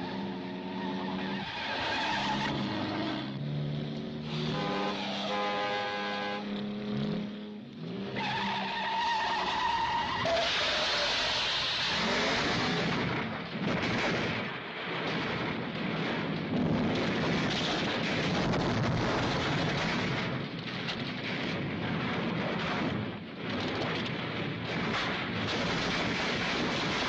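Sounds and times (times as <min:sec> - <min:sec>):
car crashing down rocky hillside: 0:09.3 - 0:27.0.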